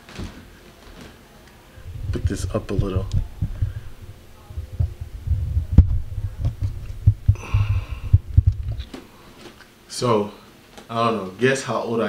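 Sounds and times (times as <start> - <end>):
fabric rubbing on microphone: 1.8 - 9.6.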